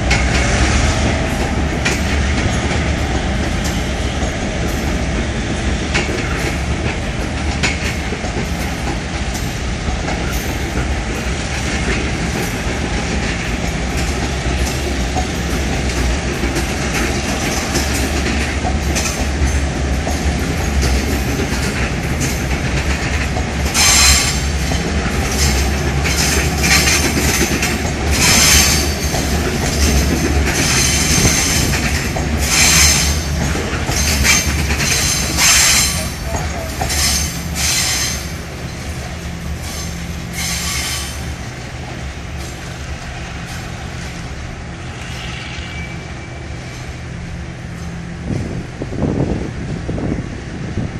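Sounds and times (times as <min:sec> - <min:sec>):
train wheels rumbling over rails: 0:00.0 - 0:50.9
train wheels squealing: 0:23.7 - 0:41.4, 0:44.8 - 0:46.9.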